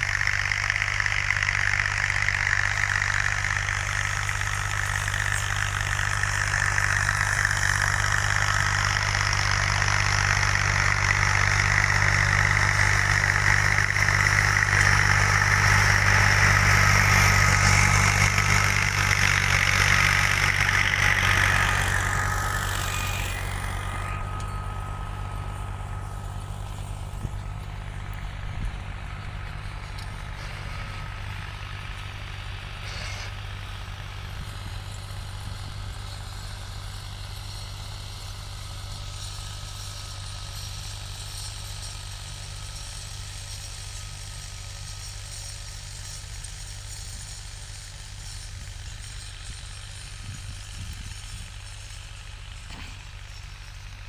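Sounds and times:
rotavator churning soil: 0.0s - 53.8s
diesel tractor engine under load: 0.0s - 54.0s.

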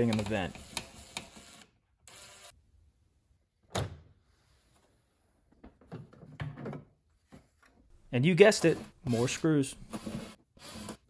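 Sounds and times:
cordless drill spinning: 0.5s - 2.5s, 9.1s - 11.0s.

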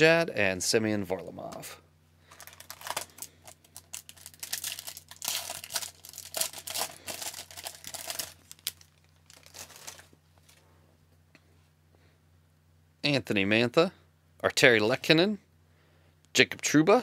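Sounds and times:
foil wrapper crinkling: 2.3s - 10.6s.

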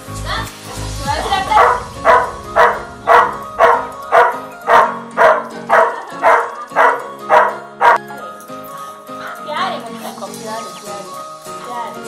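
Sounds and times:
dog barking excitedly: 1.5s - 8.0s.

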